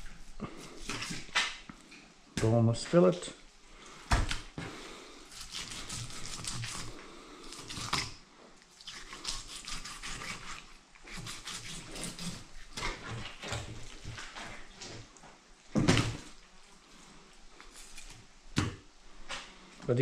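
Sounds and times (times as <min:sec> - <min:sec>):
knife slicing through fish: 0:05.3 - 0:08.2, 0:08.8 - 0:13.2.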